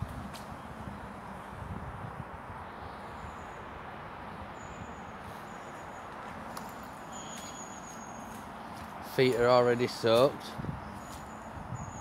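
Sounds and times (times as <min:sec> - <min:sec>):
outdoor background rushing: 0:00.0 - 0:12.0
high bird chirps: 0:07.1 - 0:08.4.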